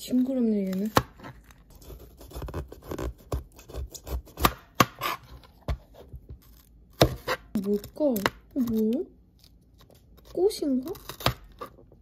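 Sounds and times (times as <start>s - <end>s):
knife slicing pepper: 0.6s - 9.0s.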